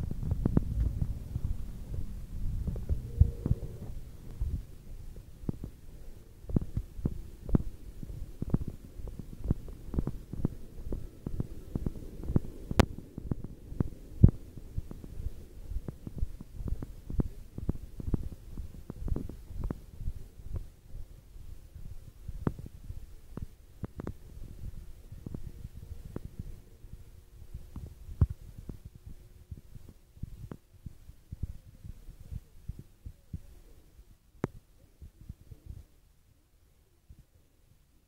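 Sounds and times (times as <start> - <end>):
footsteps walking: 0.0 - 20.7.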